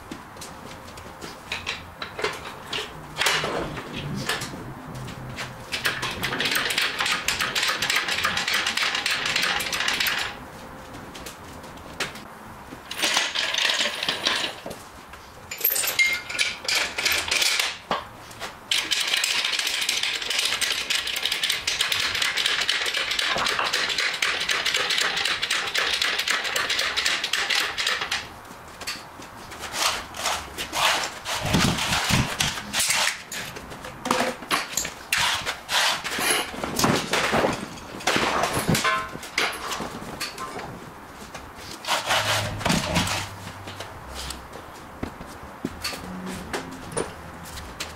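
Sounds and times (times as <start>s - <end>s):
metallic clattering of equipment: 12.8s - 14.6s, 15.5s - 17.8s, 30.8s - 40.7s.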